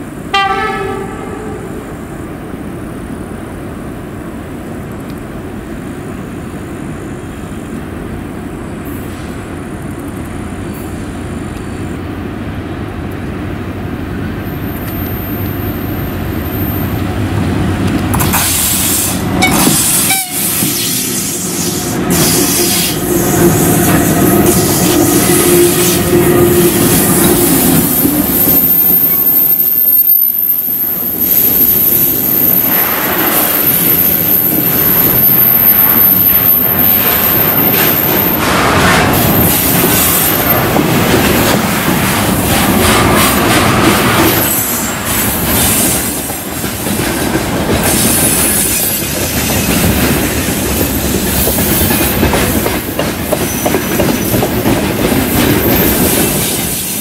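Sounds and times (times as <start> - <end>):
freight train rumbling past: 0.0 - 57.0
train wheels squealing: 18.4 - 38.4, 47.8 - 50.0.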